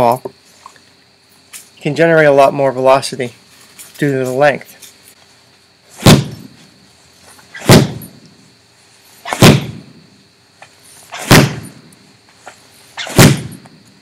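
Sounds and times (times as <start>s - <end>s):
ball thudding into heavy bag: 6.0s - 6.6s, 7.6s - 8.2s, 9.3s - 9.9s, 11.1s - 11.8s, 13.0s - 13.7s.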